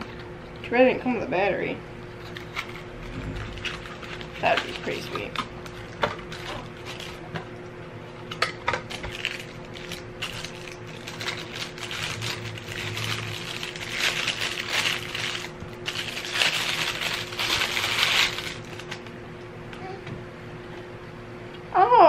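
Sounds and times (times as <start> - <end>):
plastic packaging crinkling: 2.2 - 7.4, 8.3 - 19.2.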